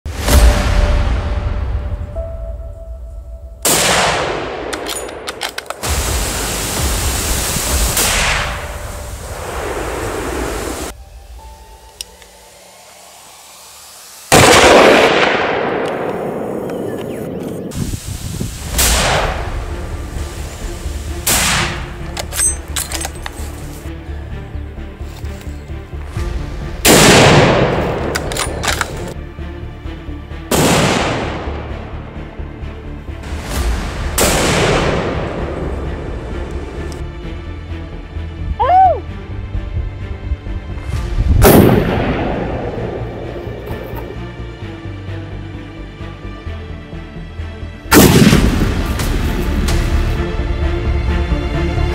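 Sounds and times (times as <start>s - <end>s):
background music: 0.1s - 17.0s, 18.5s - 51.9s
loud gunshots with rumbling echo: 3.6s - 4.8s, 14.3s - 16.6s, 26.8s - 28.1s, 30.5s - 31.6s, 34.2s - 35.6s, 41.4s - 43.4s, 47.9s - 49.2s.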